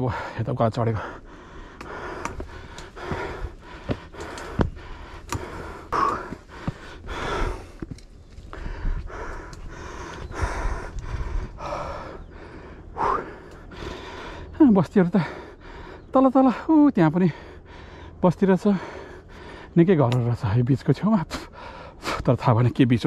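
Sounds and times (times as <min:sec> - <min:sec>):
person breathing hard: 0:00.0 - 0:14.6, 0:15.2 - 0:16.7, 0:17.3 - 0:19.8, 0:21.4 - 0:22.2
footsteps on stone steps: 0:01.6 - 0:12.0.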